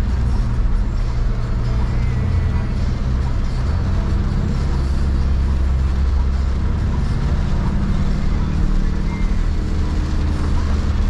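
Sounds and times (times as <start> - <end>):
engine and road drone: 0.0 - 11.0
rain hissing on car body: 2.6 - 11.0.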